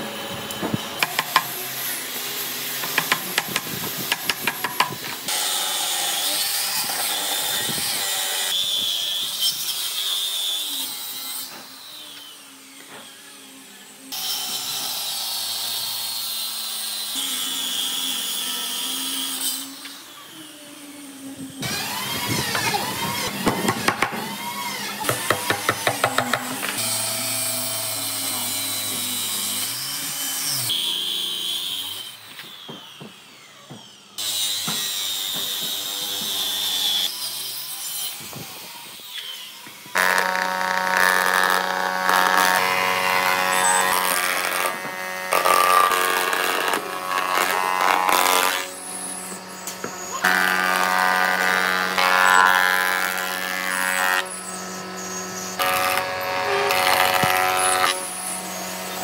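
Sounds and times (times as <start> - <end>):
circular saw cutting wood: 0.0 - 59.0
planer humming and whining: 17.1 - 34.2.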